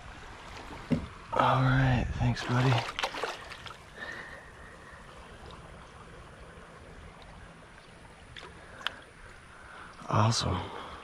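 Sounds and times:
creek water running: 0.0 - 11.0
faint ticks: 7.1 - 9.1.

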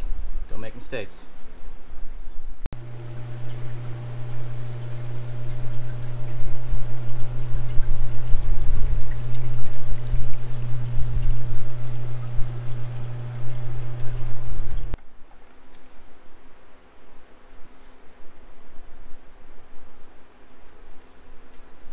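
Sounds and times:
fluid splashing and trickling: 2.8 - 15.0
pump humming: 2.8 - 15.0.

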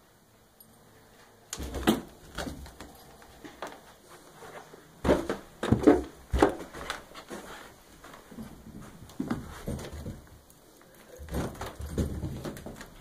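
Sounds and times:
thumps and knocks: 5.0 - 6.9, 9.2 - 10.4, 11.2 - 13.0.

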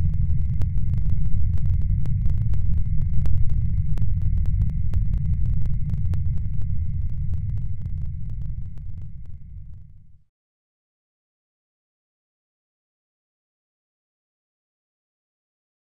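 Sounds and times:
crackling clicks: 0.0 - 9.9.

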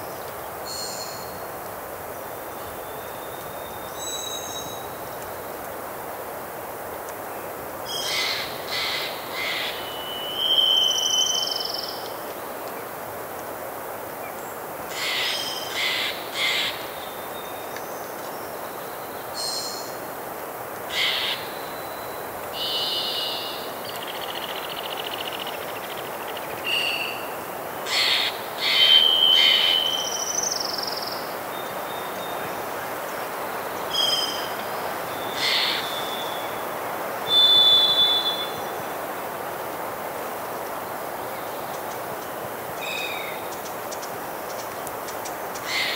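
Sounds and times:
distant river: 20.9 - 45.9.

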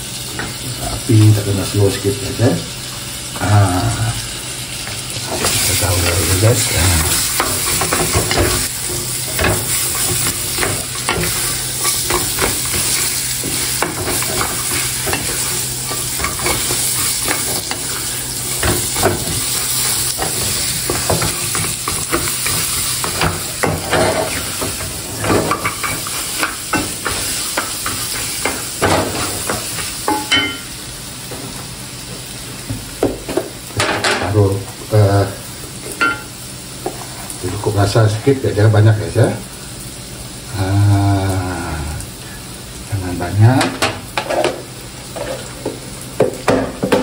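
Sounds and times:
food sizzling in a frying pan: 0.0 - 47.0
spatula stirring and scraping: 5.2 - 30.4
spatula knocking against pan: 45.6 - 47.0.

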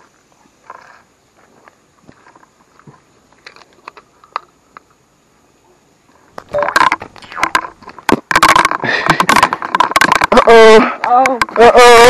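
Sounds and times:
faint ticks and rustles: 0.0 - 5.2.

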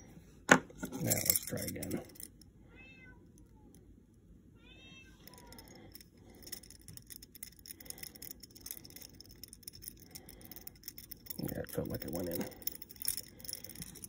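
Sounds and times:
cat meowing: 4.6 - 5.5.

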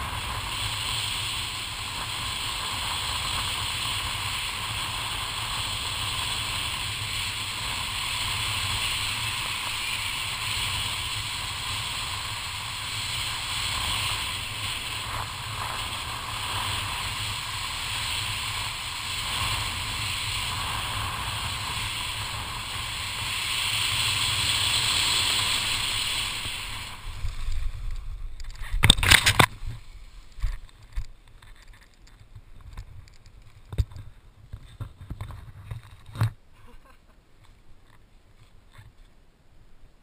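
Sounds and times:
wind rushing over microphone: 0.0 - 31.1.

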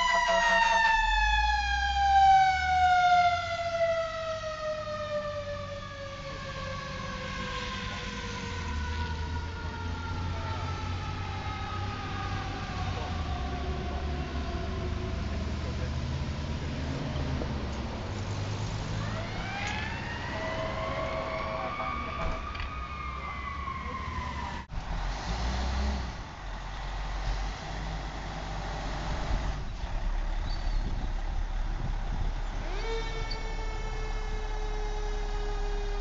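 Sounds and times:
siren tone dropping in pitch: 0.0 - 14.1, 18.9 - 24.7, 32.6 - 36.0
fire engine siren wailing: 0.0 - 17.1, 18.4 - 25.1, 27.8 - 36.0
fire truck engine running: 26.1 - 36.0.

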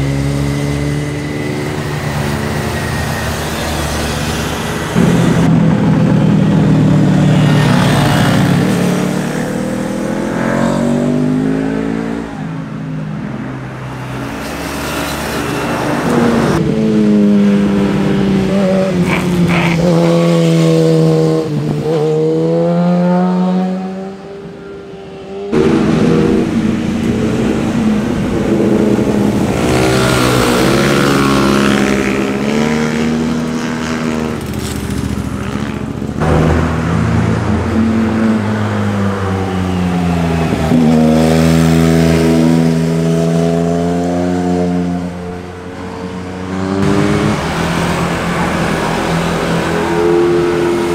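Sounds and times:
sport motorcycles passing: 0.0 - 50.9.

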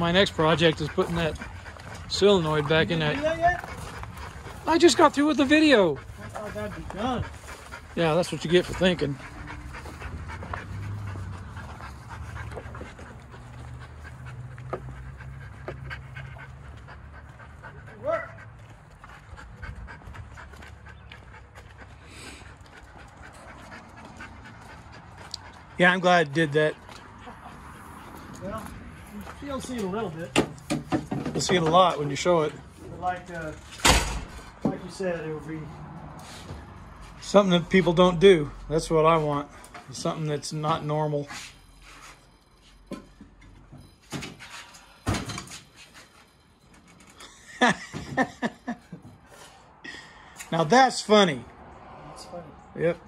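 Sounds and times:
dog panting: 0.0 - 33.7.

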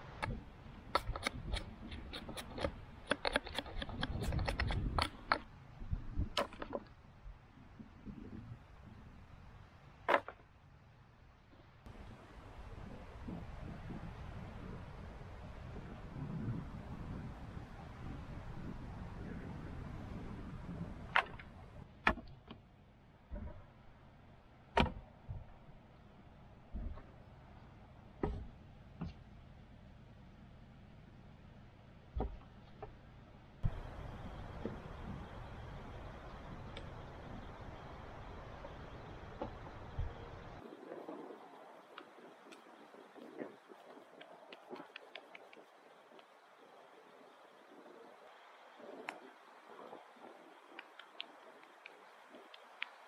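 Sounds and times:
wind rumbling on microphone: 0.0 - 30.4, 32.0 - 53.0
dull thumps: 28.2 - 29.2.

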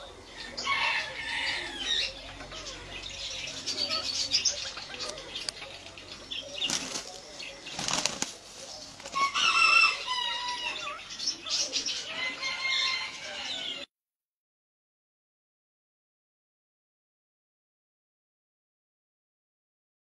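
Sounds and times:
high wavering bird calls: 0.0 - 13.9
birds flapping wings: 6.6 - 9.4.

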